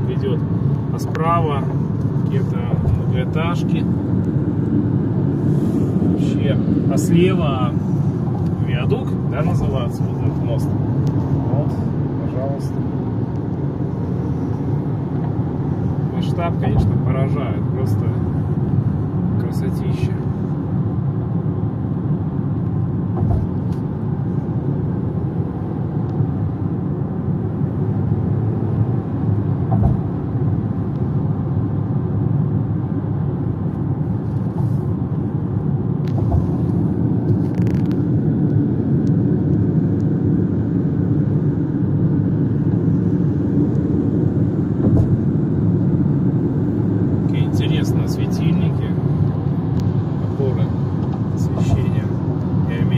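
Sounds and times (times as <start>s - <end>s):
road and engine noise in car: 0.0s - 52.9s
low thumps: 23.1s - 23.7s, 29.6s - 30.2s, 44.8s - 45.3s.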